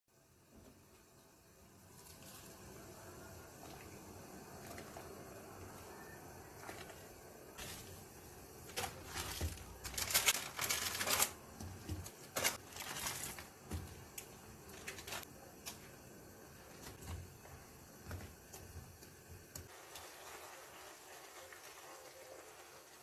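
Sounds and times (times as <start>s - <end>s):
packaging crackling and rustling: 6.6s - 15.3s.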